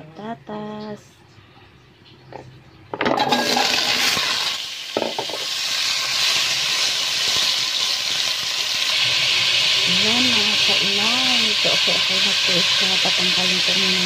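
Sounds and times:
vegetables sizzling in hot oil: 0:03.0 - 0:14.0.

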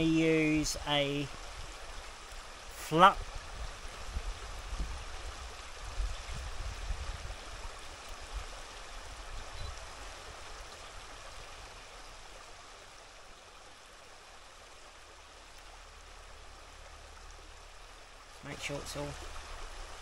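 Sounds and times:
stream running: 0:00.0 - 0:20.0
low rumbles and thumps: 0:03.6 - 0:07.4.

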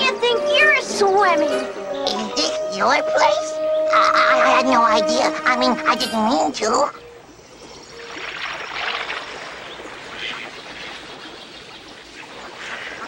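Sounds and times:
water splashing and trickling: 0:04.1 - 0:13.0.

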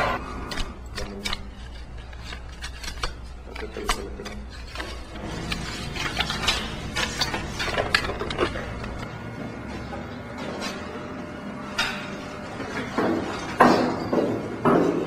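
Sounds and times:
objects handled clicking and rubbing: 0:00.4 - 0:09.1.

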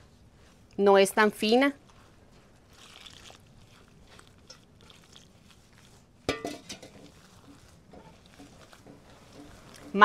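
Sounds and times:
hands squishing dough in a bowl: 0:00.0 - 0:10.0
metal pot clanking on stone: 0:06.3 - 0:07.1.

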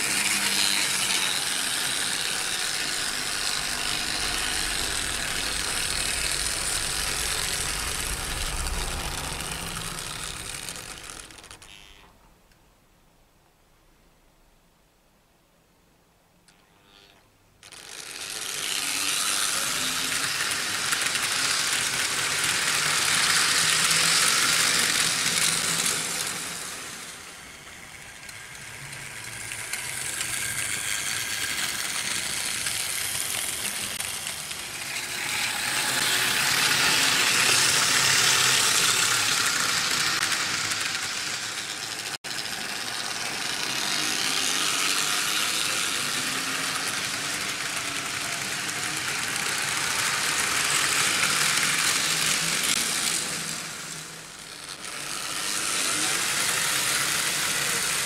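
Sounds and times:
electric motors whirring: 0:00.0 - 0:12.1, 0:16.6 - 0:58.0.

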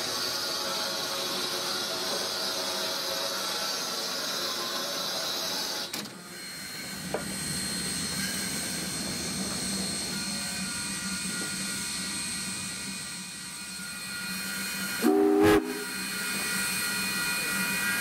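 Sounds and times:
steam hissing: 0:06.4 - 0:18.0.

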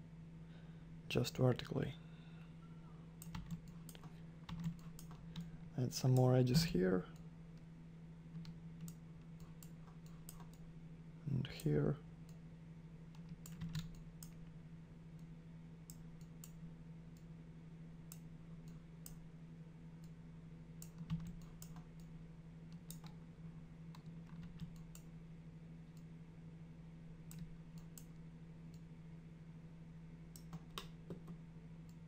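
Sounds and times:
low electrical hum: 0:00.0 - 0:32.0
computer mouse and keyboard clicks: 0:03.2 - 0:05.5, 0:08.4 - 0:10.6, 0:20.8 - 0:22.1.

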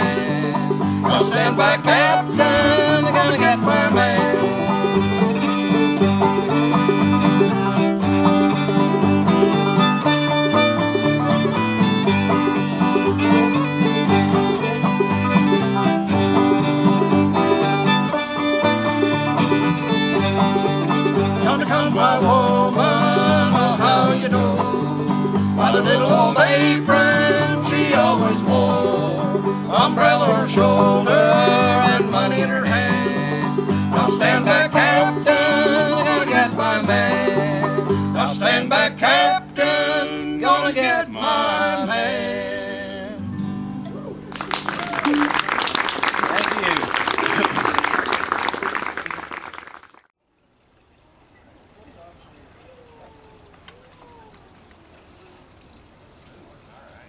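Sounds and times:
bowed fiddle melody: 0:00.0 - 0:40.6
string band playing: 0:00.0 - 0:42.9, 0:44.2 - 0:49.4
strummed acoustic guitar: 0:00.0 - 0:44.3
picked banjo: 0:00.0 - 0:45.7.

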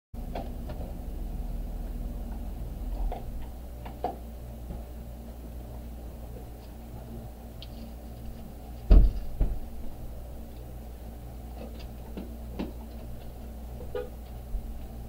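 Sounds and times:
steady low hum: 0:00.2 - 0:15.0.

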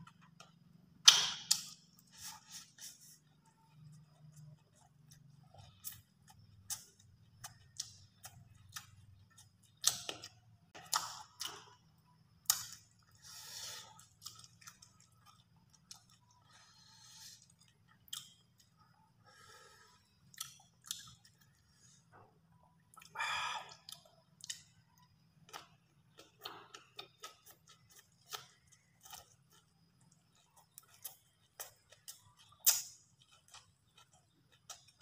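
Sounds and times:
person chewing food: 0:00.0 - 0:35.0
wet mouth clicks and smacks: 0:01.0 - 0:01.8, 0:09.8 - 0:11.6, 0:32.4 - 0:33.0.

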